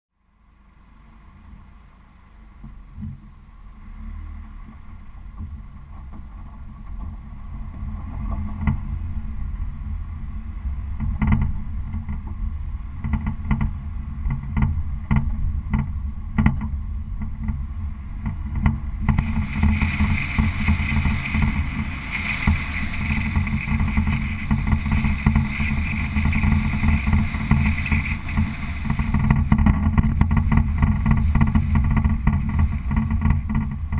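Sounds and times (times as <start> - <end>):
car road and engine rumble: 0.2 - 33.9
bright rush of noise: 19.0 - 33.7.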